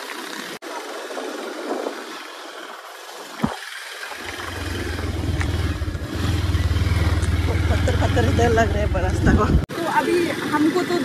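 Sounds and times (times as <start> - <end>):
road and wind noise: 0.0 - 11.0
low pulsing rumble: 4.2 - 9.7.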